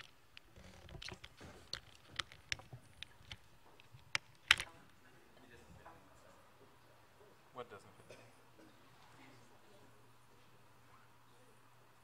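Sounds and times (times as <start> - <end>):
laptop being handled: 0.0 - 4.8.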